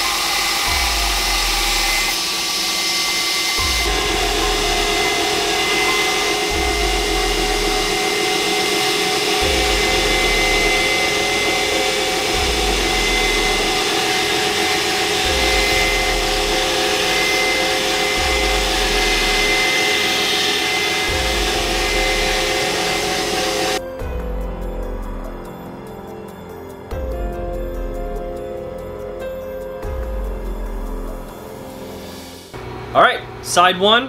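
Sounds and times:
belt grinder grinding steel: 0.0s - 23.8s
machine running hum: 0.0s - 29.2s, 29.8s - 34.0s.

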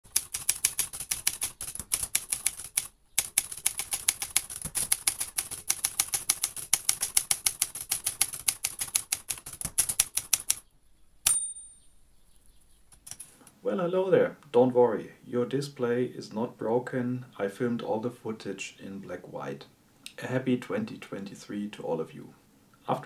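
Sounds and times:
typewriter typing: 0.0s - 10.6s.

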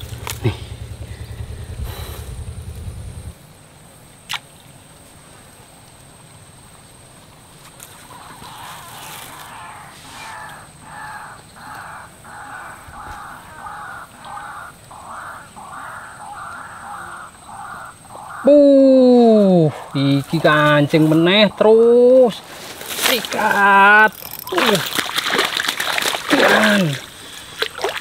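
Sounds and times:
animal making harsh calls: 8.4s - 18.8s.

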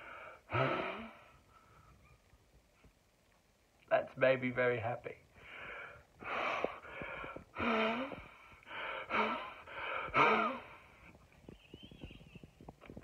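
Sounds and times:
man puffing breath through lips: 6.2s - 11.2s.

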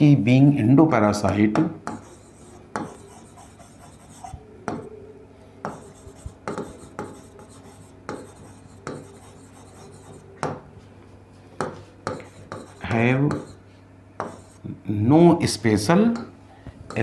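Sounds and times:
marker pen writing on whiteboard: 1.8s - 4.9s, 5.6s - 10.6s, 11.6s - 13.6s, 14.2s - 14.6s.

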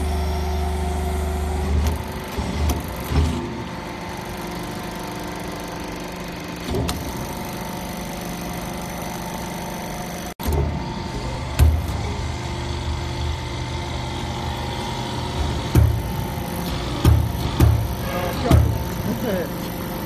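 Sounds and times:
hydraulic unit humming: 0.0s - 20.0s
dull knocks of press ram: 15.7s - 16.1s, 17.0s - 18.8s.

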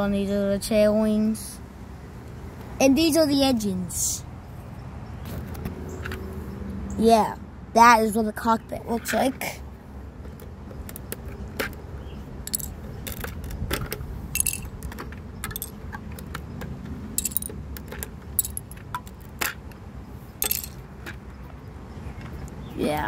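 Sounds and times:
plastic bricks clicking: 12.5s - 19.8s, 20.4s - 21.2s.

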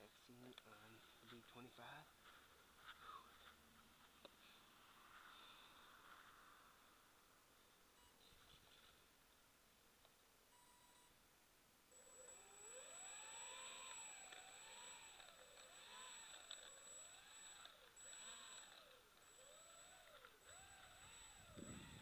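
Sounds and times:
thin high whine: 0.0s - 9.1s, 11.9s - 22.0s
model plane propeller motors: 11.9s - 22.0s.

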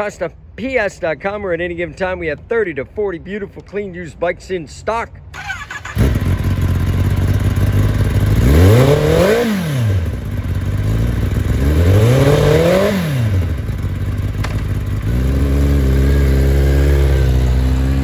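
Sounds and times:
motorcycle engine starting and idling: 5.3s - 18.0s
motorcycle engine revving: 5.4s - 18.0s.

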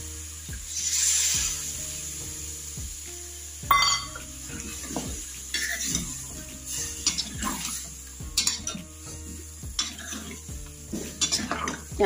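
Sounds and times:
ladle scraping metal pot: 3.7s - 11.9s.

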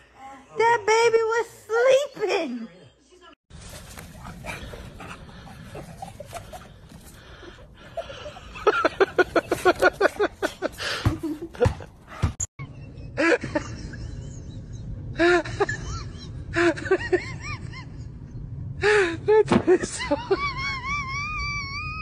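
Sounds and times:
person laughing: 5.7s - 12.0s.

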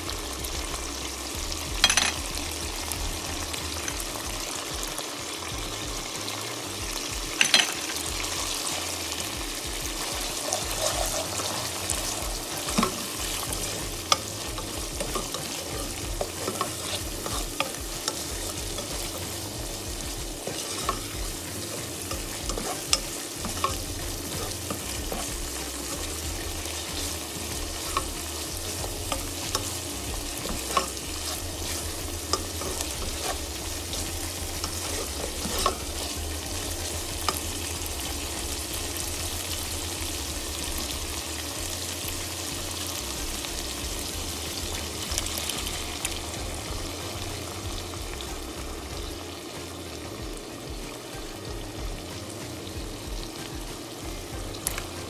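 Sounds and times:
food sizzling in a pan: 0.0s - 55.0s
spatula scraping and tapping pan: 1.7s - 2.6s, 7.4s - 8.9s, 9.7s - 38.9s.

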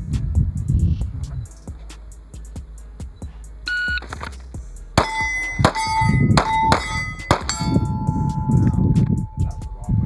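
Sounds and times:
shot timer beep: 3.7s - 4.0s
pistol shots: 5.0s - 7.8s
steel targets ringing: 5.0s - 9.4s.

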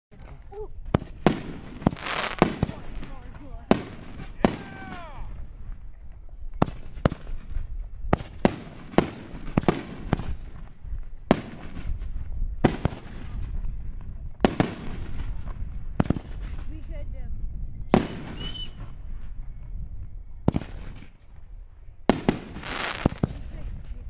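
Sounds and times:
firework shells bursting: 0.8s - 4.7s, 22.1s - 23.5s.

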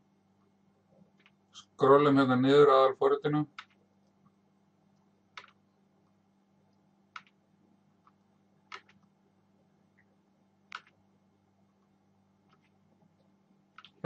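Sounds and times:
faint low hum: 0.0s - 14.0s
sharp computer clicks: 3.5s - 3.8s, 5.4s - 5.6s, 7.1s - 7.4s, 8.1s - 9.1s, 10.7s - 11.0s, 13.8s - 14.0s.

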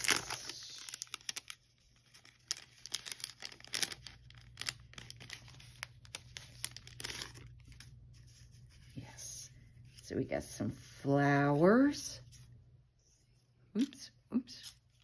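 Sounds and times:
plastic packet crinkling: 0.0s - 8.0s.

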